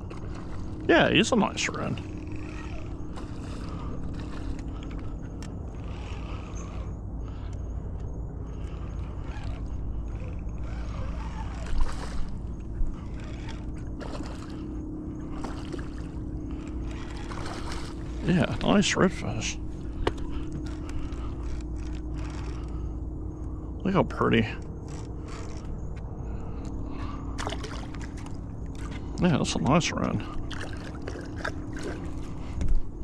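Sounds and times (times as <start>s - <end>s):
light water noise: 0.0s - 33.0s
steady low hum: 0.0s - 33.0s
fish splashing at surface: 27.4s - 28.9s.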